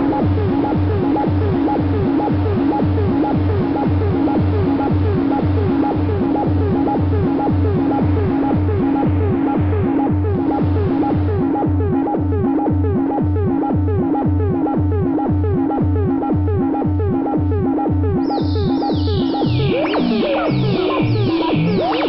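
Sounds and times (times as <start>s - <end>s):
low synthesizer pulse with blips: 0.0s - 22.0s
falling synthesizer sweeps: 18.2s - 22.0s.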